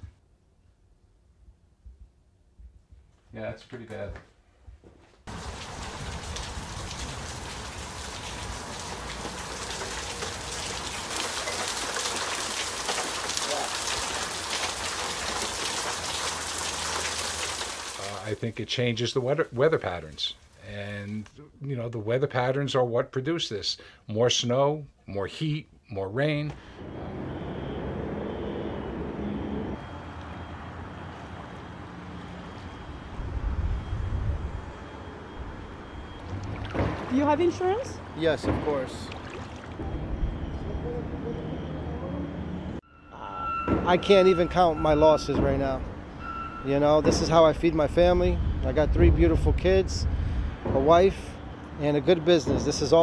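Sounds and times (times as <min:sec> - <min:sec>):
small drip splashes: 0:05.3 - 0:18.2, 0:36.3 - 0:37.1, 0:39.0 - 0:39.8
falling water patter: 0:05.3 - 0:21.2, 0:38.6 - 0:39.8
faint engine hum: 0:26.6 - 0:43.4.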